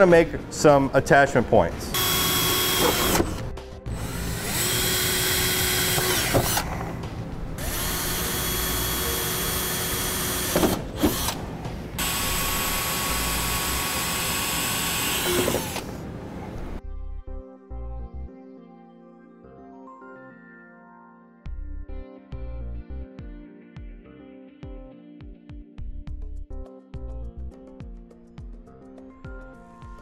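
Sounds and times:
cordless drill whining: 1.9s - 7.0s, 7.6s - 16.1s.

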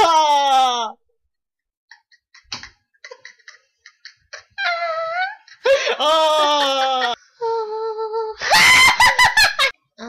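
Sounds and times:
woman screaming: 6.0s - 7.2s.

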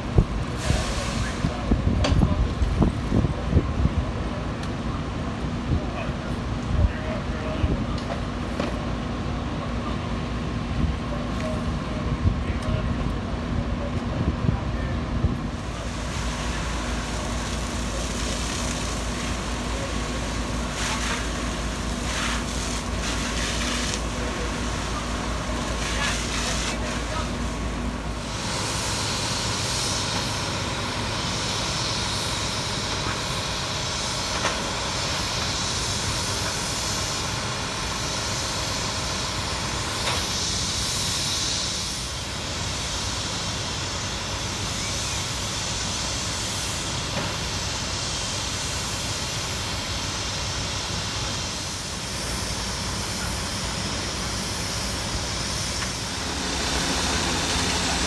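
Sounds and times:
hose water spraying: 0.5s - 1.6s, 15.6s - 58.0s
engines droning: 51.5s - 58.0s.

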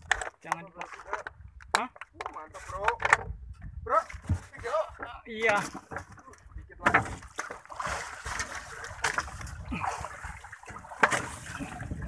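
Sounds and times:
fish splashing at water surface: 7.2s - 11.9s.

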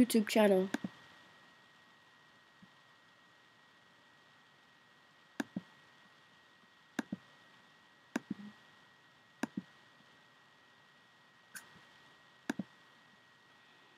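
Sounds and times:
faint steady hiss: 0.0s - 13.9s
computer mouse clicking: 0.7s - 1.0s, 5.4s - 5.7s, 7.0s - 7.2s, 8.1s - 8.5s, 9.4s - 9.7s, 12.5s - 12.7s.

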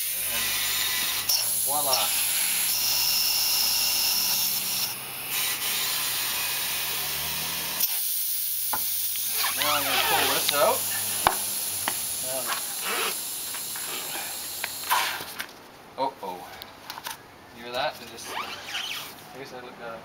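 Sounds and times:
compressed air hissing: 0.0s - 15.4s.

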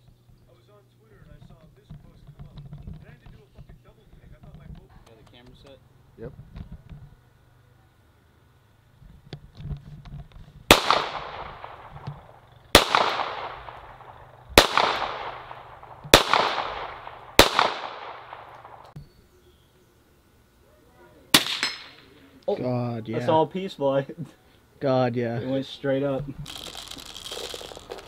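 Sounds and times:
handgun shots with echo: 10.7s - 18.9s, 21.4s - 22.0s.

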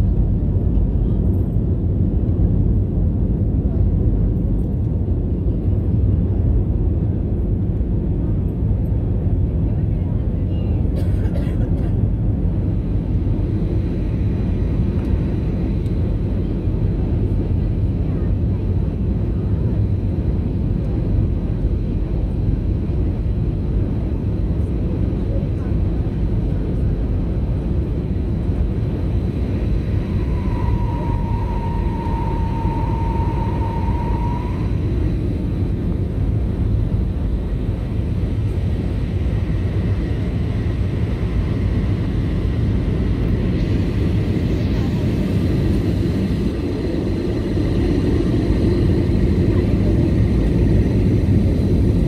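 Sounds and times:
airliner cabin engine rumble: 0.0s - 52.0s
thin steady tone: 29.4s - 35.6s.

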